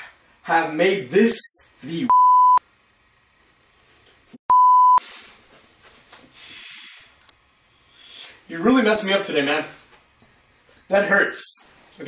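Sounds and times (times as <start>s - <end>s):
censor bleeps: 2.1s - 2.6s, 4.5s - 5.0s.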